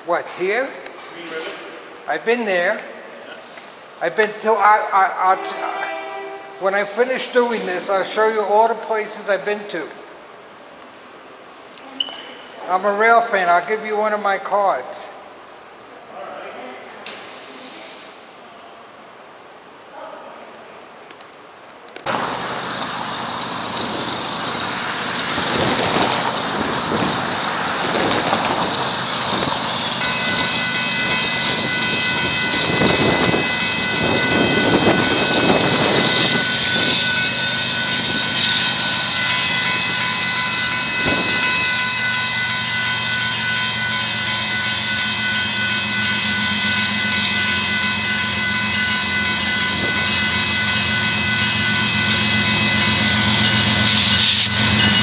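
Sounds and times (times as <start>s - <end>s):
diesel locomotive engine drone: 0.0s - 16.1s, 20.9s - 55.0s
high multi-tone ringing: 28.6s - 55.0s.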